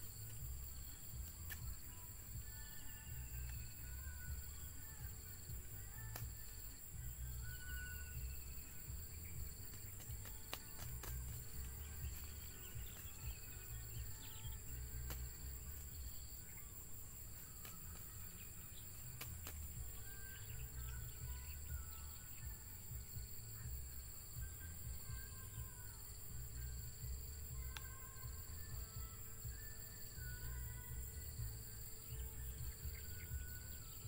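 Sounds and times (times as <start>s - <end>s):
faint insects: 0.0s - 34.0s
small birds chirping: 0.0s - 34.0s
bird flapping wings: 9.6s - 13.3s, 19.1s - 19.8s.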